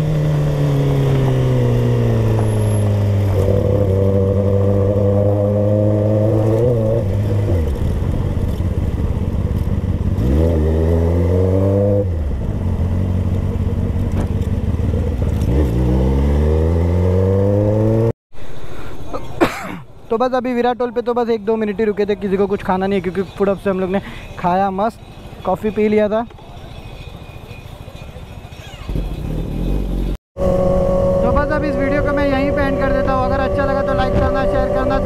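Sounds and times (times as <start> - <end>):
motorcycle engine revving: 0.0 - 18.2, 28.6 - 35.0.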